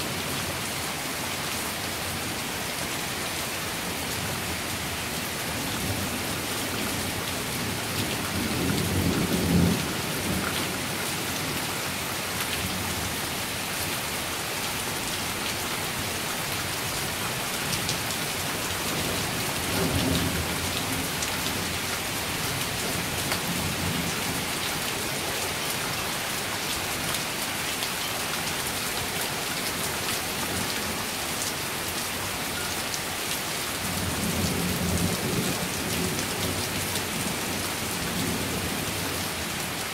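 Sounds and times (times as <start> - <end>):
heavy rain: 0.0 - 39.9.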